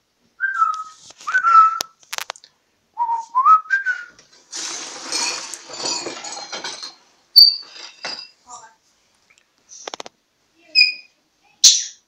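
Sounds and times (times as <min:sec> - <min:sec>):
person whistling: 0:00.4 - 0:01.8, 0:03.0 - 0:04.1
rough hissing scrape: 0:04.4 - 0:05.8.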